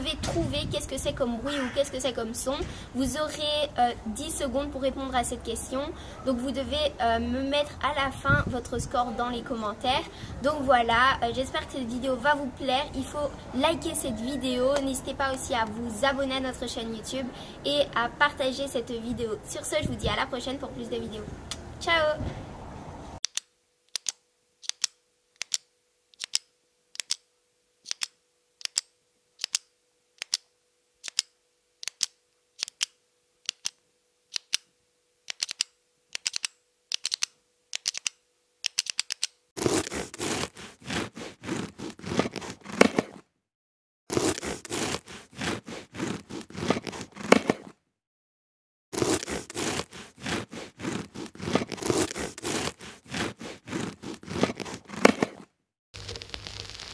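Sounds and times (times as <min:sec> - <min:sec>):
ballpoint pen clicking: 0:23.2 - 0:27.2, 0:27.8 - 0:30.4, 0:31.0 - 0:34.7, 0:35.3 - 0:39.4
bread knife sawing through bread: 0:39.6 - 0:43.1, 0:44.1 - 0:47.7, 0:49.0 - 0:55.4.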